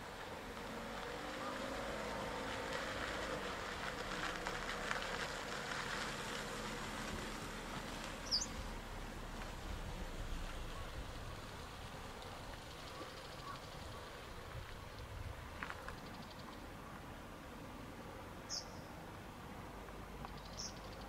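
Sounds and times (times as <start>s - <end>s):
distant vehicle passing: 0.0s - 14.8s.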